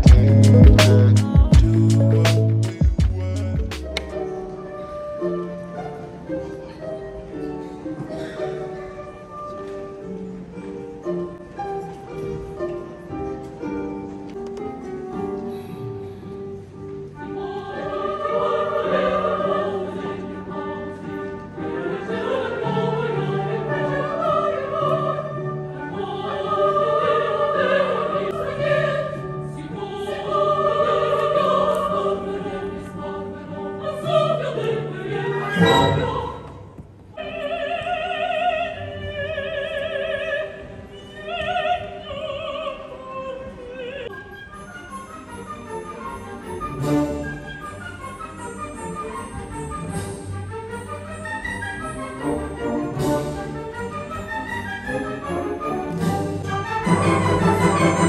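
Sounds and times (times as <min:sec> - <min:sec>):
opera chorus singing: 0:00.0 - 0:11.9, 0:16.5 - 0:58.0
orchestra playing: 0:00.0 - 0:15.4, 0:32.3 - 0:37.2, 0:44.1 - 0:58.0
woman singing with vibrato: 0:21.8 - 0:44.2.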